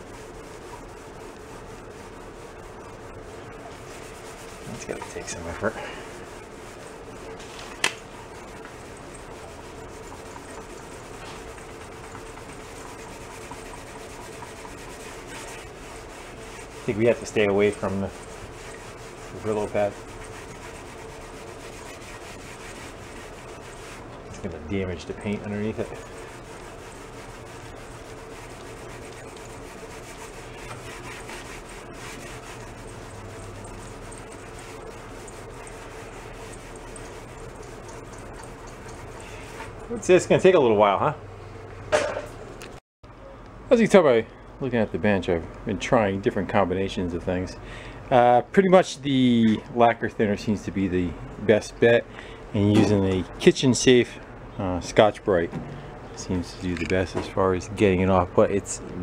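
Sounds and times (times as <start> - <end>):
scouring pad scrubbing metal: 0.0 - 40.3.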